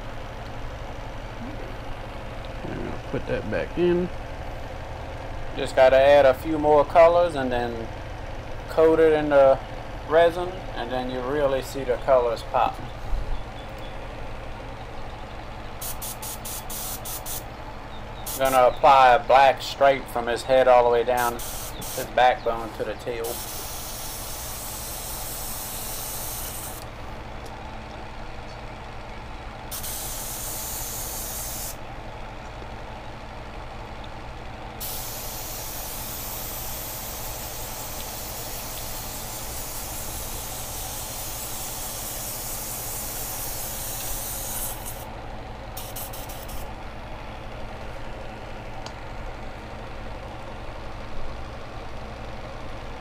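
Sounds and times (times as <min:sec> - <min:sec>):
low hum: 0:00.0 - 0:05.1
airbrush spraying hiss: 0:15.8 - 0:17.4, 0:18.3 - 0:18.6, 0:21.2 - 0:22.1, 0:23.2 - 0:26.9, 0:29.7 - 0:31.8, 0:34.8 - 0:45.1, 0:45.8 - 0:46.7.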